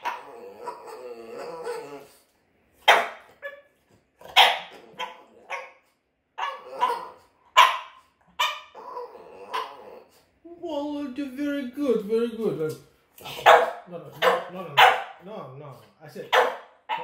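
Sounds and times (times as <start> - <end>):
dog grumbling: 0.0 - 2.2, 4.2 - 5.6, 6.4 - 7.3, 8.7 - 10.3
dog barking sharply: 2.8 - 3.6, 4.3 - 5.7, 7.6 - 8.7, 13.3 - 15.2, 16.3 - 17.0.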